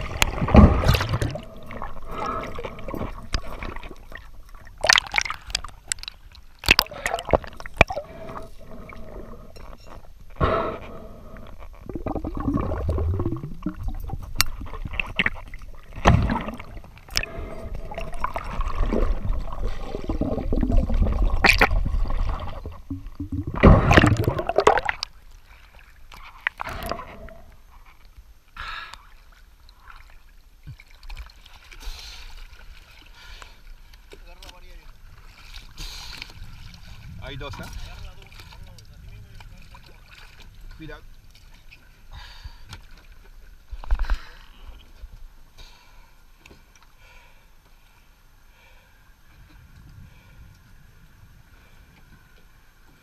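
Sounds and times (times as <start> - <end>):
rushes of water: 0.0 - 47.0
water gurgling and sloshing: 0.0 - 53.0.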